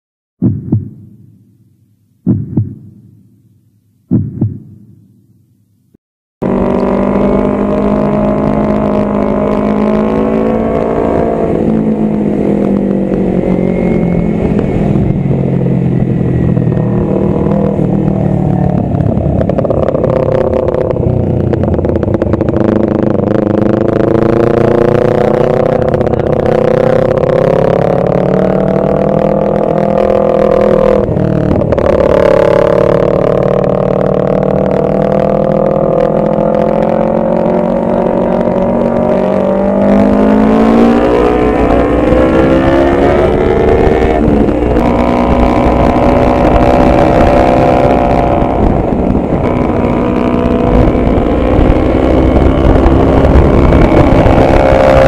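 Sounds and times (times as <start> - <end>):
low booms: 0.4 - 1.6, 2.2 - 3.5, 4.1 - 5.4
motorcycle engine revving: 6.4 - 55.0.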